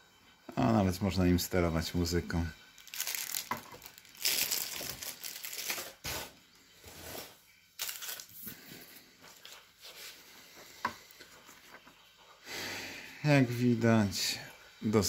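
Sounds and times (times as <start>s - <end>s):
plastic bag crinkling: 2.8s - 6.2s, 7.8s - 8.6s.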